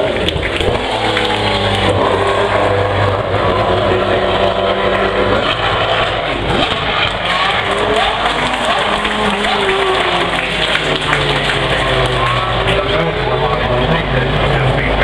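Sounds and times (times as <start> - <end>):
distant engines revving: 0.0 - 15.0
race car engine passing: 0.0 - 15.0.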